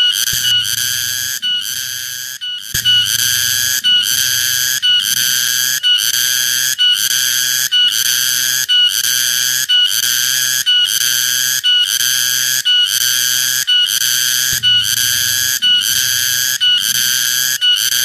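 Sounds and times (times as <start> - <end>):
cicada buzzing song: 0.0 - 18.0.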